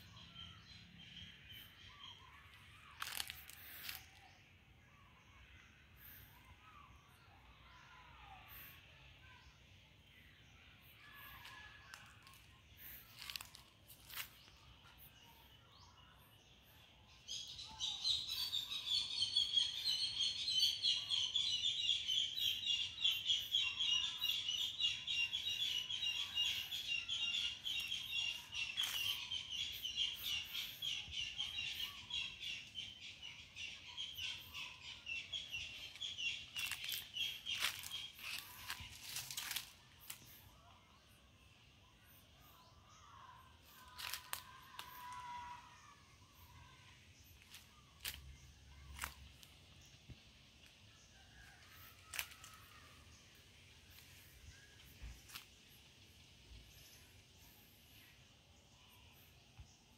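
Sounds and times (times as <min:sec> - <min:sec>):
steps through dry leaf litter: 0:03.0 - 0:04.1, 0:11.4 - 0:14.6, 0:27.7 - 0:29.2, 0:35.7 - 0:40.3, 0:43.8 - 0:45.2, 0:47.4 - 0:48.3, 0:52.0 - 0:52.6.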